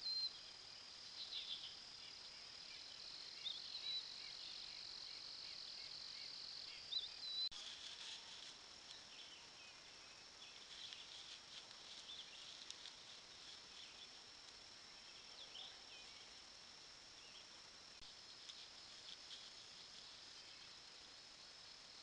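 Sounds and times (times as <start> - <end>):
faint bird chirps: 0.0 - 14.2
insect chorus drone: 0.0 - 22.0.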